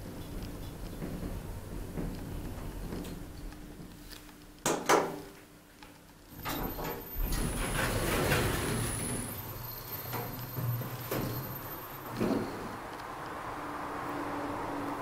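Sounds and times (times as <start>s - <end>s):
door motor whine: 6.3s - 14.6s
elevator doors sliding open: 6.3s - 15.0s
elevator low hum: 6.3s - 15.0s.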